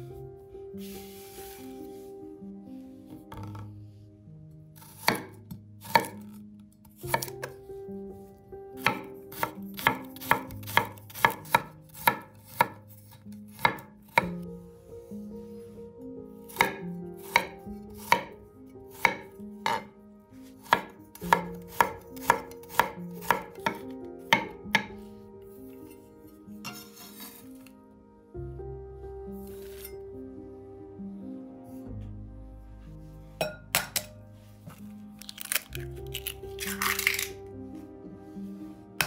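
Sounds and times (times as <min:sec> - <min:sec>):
knife chopping on wooden board: 0:04.8 - 0:06.3, 0:07.0 - 0:07.5, 0:08.8 - 0:14.4, 0:16.5 - 0:19.9, 0:20.6 - 0:25.0.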